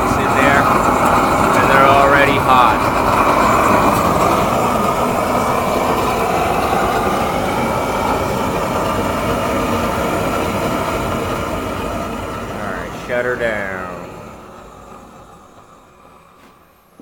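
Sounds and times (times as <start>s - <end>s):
gas torch roaring: 0.0s - 17.0s.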